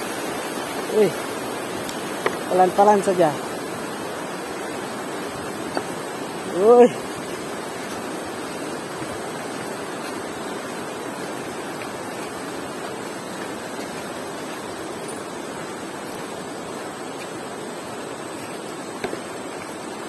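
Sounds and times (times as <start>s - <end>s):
river rushing over rocks: 0.0s - 20.0s.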